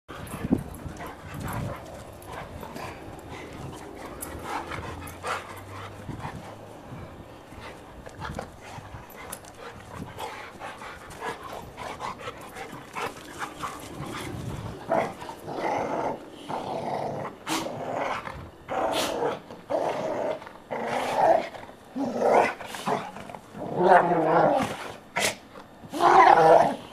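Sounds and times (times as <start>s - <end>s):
dogs scuffling: 0.1s - 15.5s
dogs play growling: 0.1s - 26.9s.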